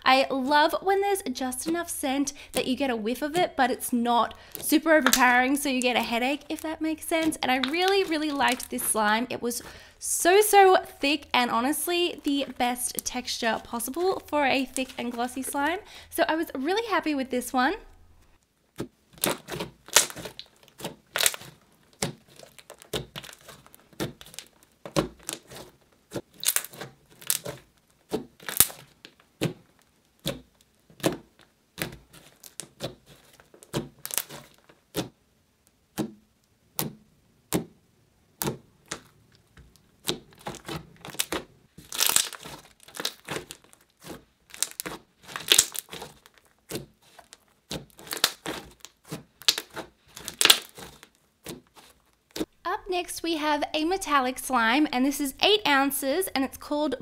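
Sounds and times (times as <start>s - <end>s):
slime squished by hand: 18.8s - 35.2s, 35.8s - 52.5s
slime clicks and crackling pops: 19.2s - 24.6s, 26.3s - 27.6s, 28.4s - 29.5s, 40.4s - 51.1s.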